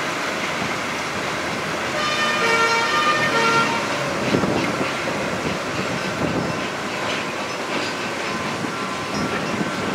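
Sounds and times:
fire engine horn blasts: 1.9 - 4.0.

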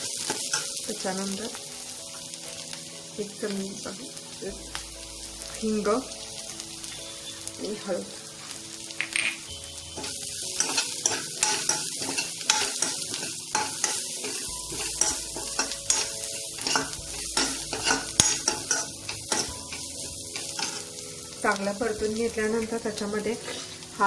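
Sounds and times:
onions sizzling in oil: 0.0 - 24.0
metal spoon scraping pan: 10.0 - 20.9.

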